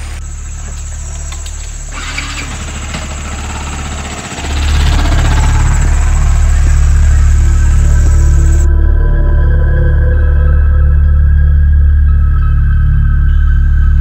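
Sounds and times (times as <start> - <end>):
motorcycle engine idling: 0.0 - 8.7.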